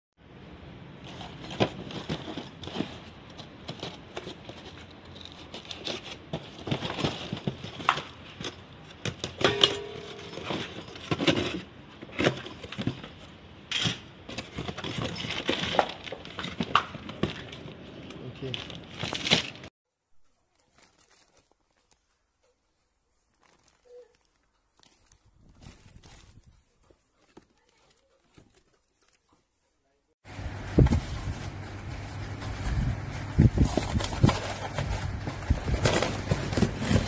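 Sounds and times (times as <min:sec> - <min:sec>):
cardboard tearing and scraping: 0:01.0 - 0:08.5, 0:18.4 - 0:19.7, 0:30.6 - 0:37.0
plastic wrapping crinkling: 0:17.1 - 0:29.6, 0:30.4 - 0:37.0.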